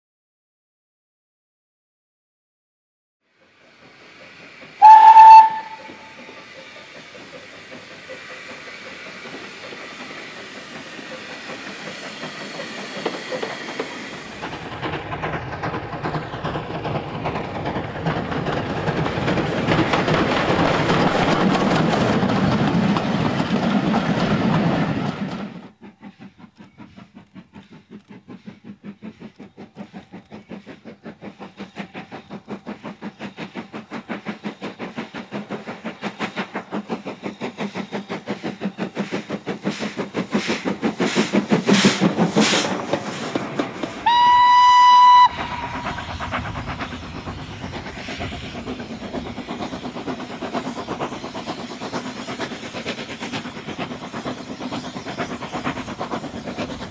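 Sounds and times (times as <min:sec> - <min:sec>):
steam locomotive exhaust beats: 0:03.4 - 0:56.9
train coaches rushing past: 0:03.4 - 0:56.9
steam whistle blast: 0:04.8 - 0:06.2, 0:44.0 - 0:45.9.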